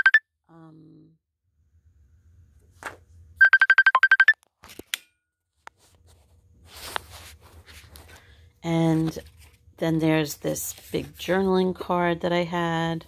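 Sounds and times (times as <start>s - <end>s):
paper rustling: 2.7s - 3.0s, 5.8s - 9.6s, 10.2s - 11.6s.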